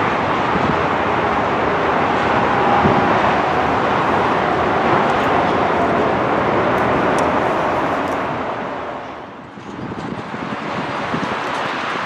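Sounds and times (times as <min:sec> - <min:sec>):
jet engines in flight: 0:00.0 - 0:12.0.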